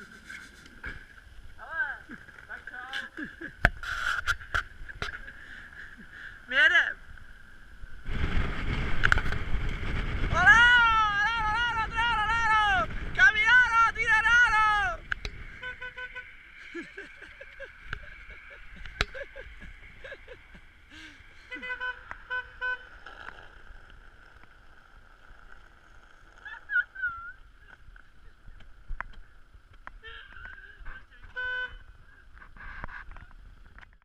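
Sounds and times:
road noise: 0.0s - 34.0s
car horn beeping: 15.5s - 16.6s, 21.5s - 23.0s, 31.2s - 31.9s.

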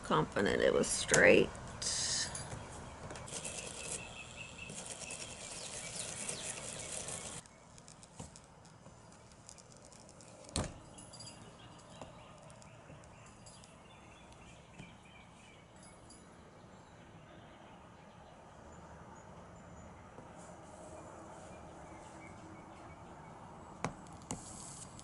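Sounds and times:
solder sizzling: 3.2s - 10.3s.

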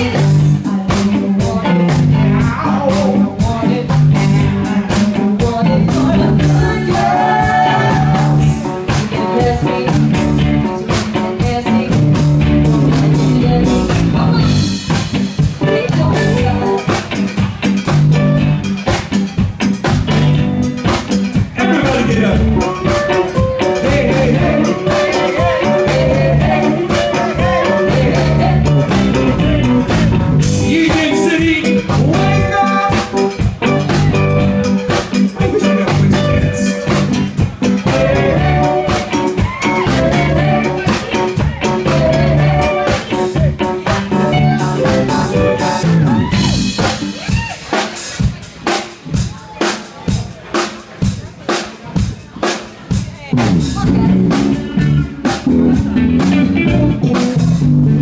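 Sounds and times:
woman singing into a microphone: 0.0s - 10.4s, 11.1s - 14.6s, 23.8s - 29.6s, 37.9s - 43.2s
electric guitar: 0.0s - 49.3s, 52.9s - 58.0s
drum kit: 0.0s - 58.0s.

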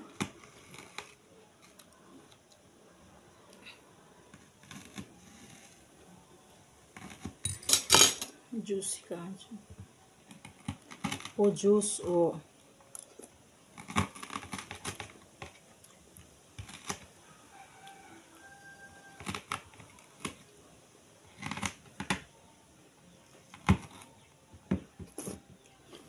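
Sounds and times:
mouth eating sounds: 25.1s - 26.0s.

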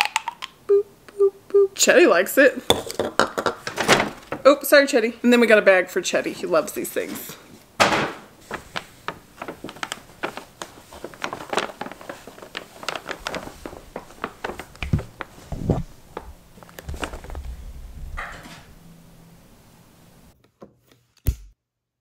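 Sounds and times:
paper bag crackling: 3.6s - 4.5s, 8.4s - 18.7s.

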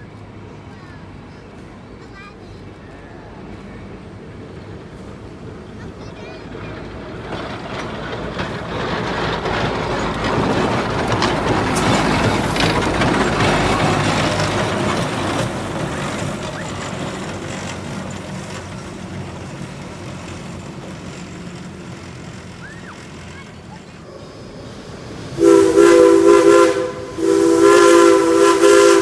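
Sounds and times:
steam locomotive exhaust: 7.8s - 29.0s.

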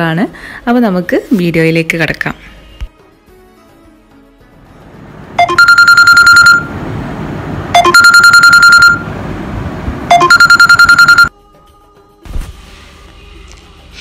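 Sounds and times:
smartphone alarm: 5.4s - 6.7s, 7.8s - 9.1s, 10.1s - 11.3s.

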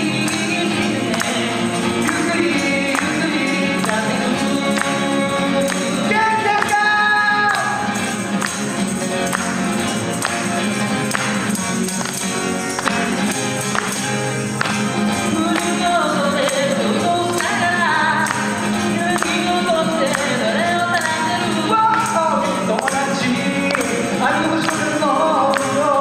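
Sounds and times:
man singing: 0.0s - 8.2s, 15.1s - 26.0s
hand percussion beat: 0.0s - 26.0s
strummed acoustic guitar: 0.0s - 26.0s.

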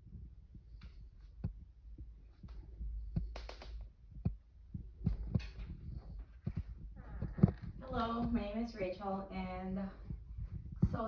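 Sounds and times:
soft thumps and clicks: 0.2s - 8.5s.

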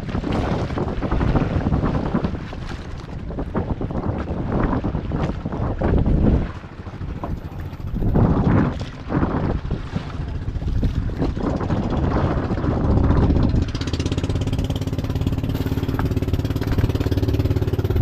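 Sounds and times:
water noise: 0.0s - 18.0s
wind: 0.0s - 18.0s
boat engine humming: 5.7s - 18.0s.

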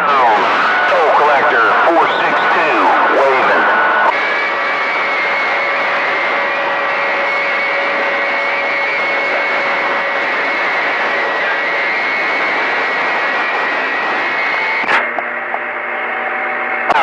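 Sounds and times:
radio static hiss: 0.0s - 4.7s, 8.9s - 17.0s
low buzzing hum: 0.0s - 17.0s.

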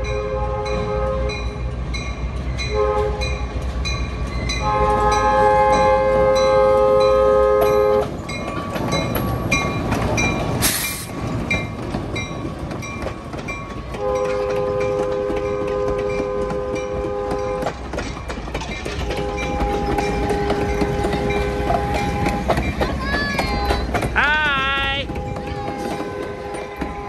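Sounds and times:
train wheels rumbling on rails: 0.0s - 27.0s
train horn chord blasts: 0.1s - 1.7s, 2.7s - 3.4s, 4.6s - 8.1s, 14.0s - 17.7s, 19.0s - 22.6s, 25.1s - 27.0s
short hiss: 10.6s - 11.1s.

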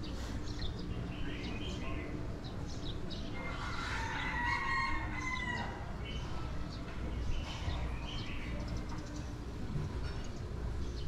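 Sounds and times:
rooster crowing: 3.5s - 5.9s.

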